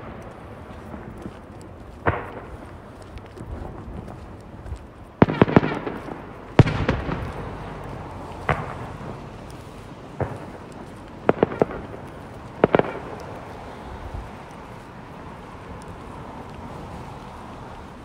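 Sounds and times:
fireworks bangs with rumbling echo: 0.0 - 13.6.

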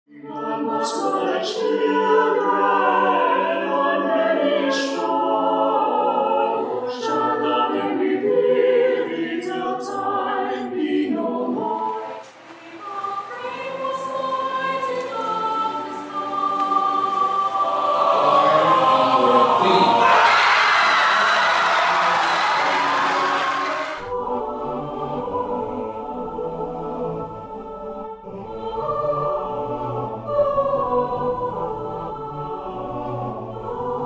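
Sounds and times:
choir singing: 0.1 - 34.0
loud rush of noise: 11.5 - 24.2.

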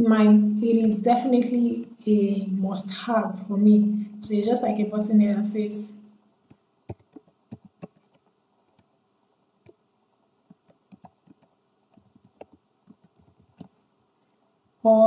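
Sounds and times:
faint keyboard typing: 6.5 - 9.0, 10.5 - 13.8.

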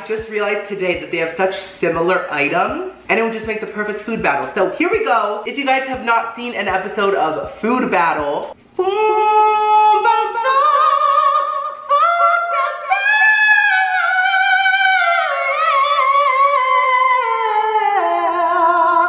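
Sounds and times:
person singing operatic notes: 8.2 - 19.0.

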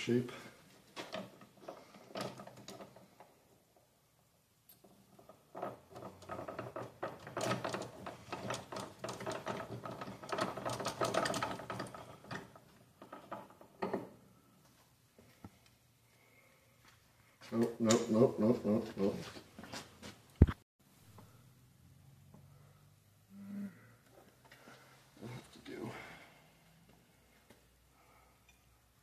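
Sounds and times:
gears clicking and rattling: 4.7 - 14.1.

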